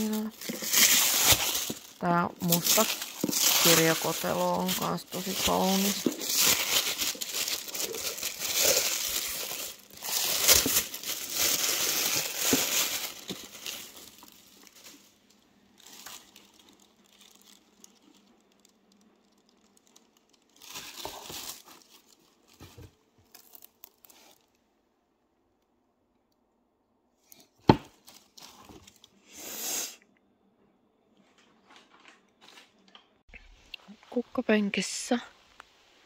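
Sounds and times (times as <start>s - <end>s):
tissue paper crinkling: 0.0s - 24.6s.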